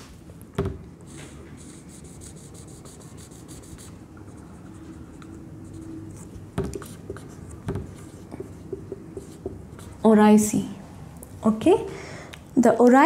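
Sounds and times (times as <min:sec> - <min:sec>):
marker scratching on whiteboard: 0:01.0 - 0:10.3.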